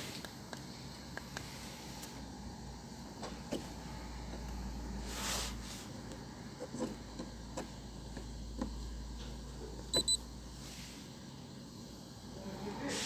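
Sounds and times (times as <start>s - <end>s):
high-pitched electronic beeps: 9.9s - 10.2s.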